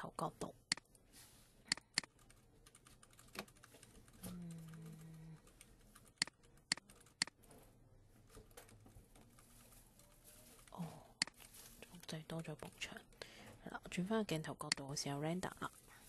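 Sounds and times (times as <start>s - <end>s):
computer mouse and keyboard clicks: 1.7s - 7.4s, 14.7s - 14.9s.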